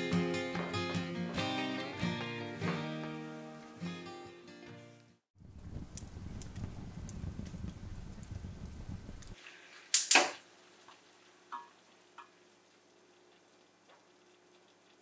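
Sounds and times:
fire crackling in a fireplace: 5.3s - 15.0s.

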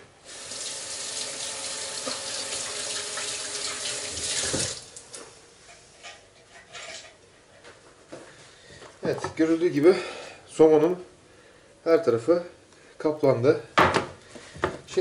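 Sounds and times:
tap water running into sink: 0.3s - 5.2s.

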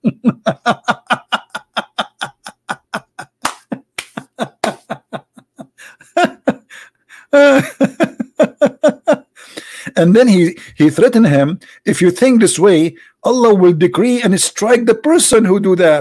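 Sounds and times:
man laughing hard: 0.0s - 9.9s.

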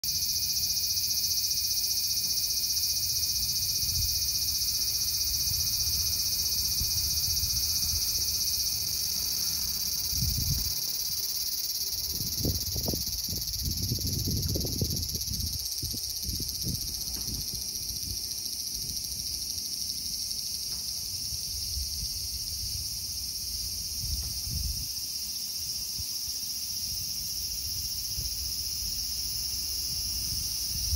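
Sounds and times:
cicadas buzzing: 0.0s - 30.9s.

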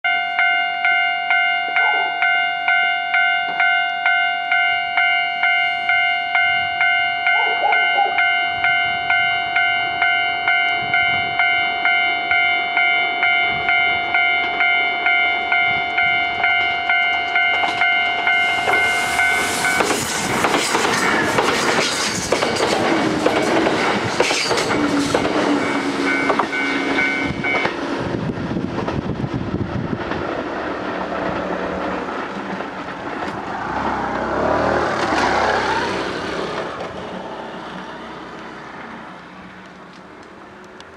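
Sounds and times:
level-crossing alarm dinging: 0.1s - 20.0s, 24.6s - 27.7s
train wheel rumble: 7.4s - 40.9s
wheels clacking over rail joints: 16.4s - 28.1s, 29.8s - 40.9s.

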